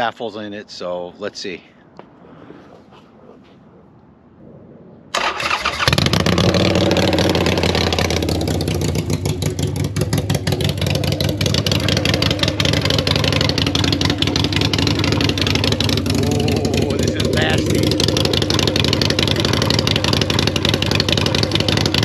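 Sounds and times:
motorcycle engine starting and idling: 5.1s - 22.0s.

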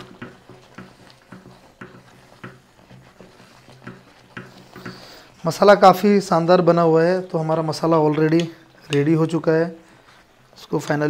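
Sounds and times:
wooden spatula knocking a pan: 0.0s - 5.9s.

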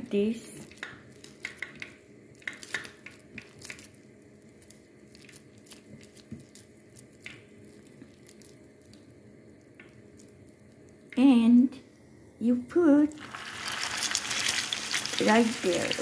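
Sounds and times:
hands squishing raw mixture: 0.6s - 11.0s.

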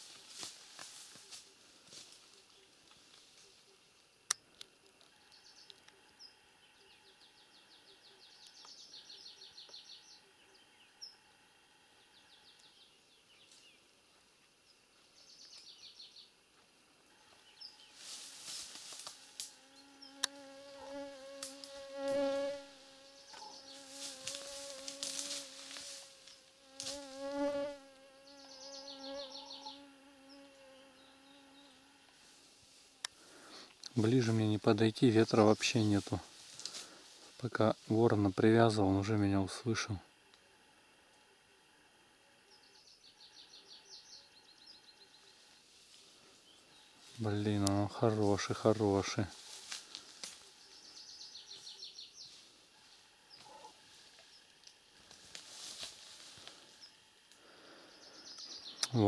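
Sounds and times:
flying insect buzzing: 17.1s - 33.6s, 49.0s - 58.6s.

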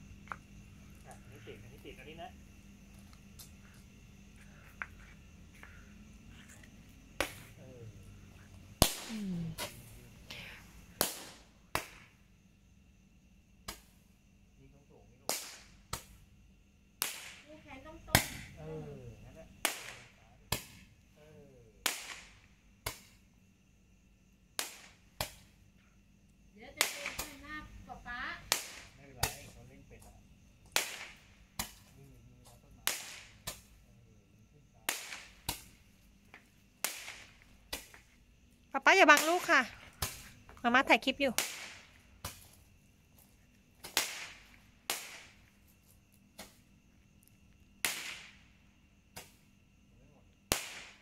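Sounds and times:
firework pops: 6.5s - 7.6s, 8.8s - 10.0s, 10.9s - 12.2s, 13.6s - 14.0s, 15.2s - 16.2s, 17.0s - 18.6s, 19.6s - 20.9s, 21.8s - 23.2s, 24.6s - 25.6s, 26.7s - 27.6s, 28.4s - 33.8s, 34.8s - 38.1s, 39.1s - 40.6s, 41.3s - 42.6s, 43.2s - 45.6s, 46.3s - 46.7s, 47.8s - 48.5s, 49.1s - 49.4s, 50.4s - 51.0s.

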